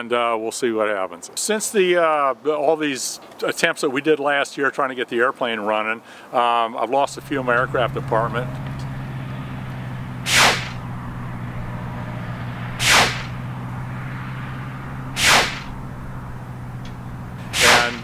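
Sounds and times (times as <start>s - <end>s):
steady low hum: 7.0s - 18.0s
whoosh falling in pitch: 7.1s - 15.8s.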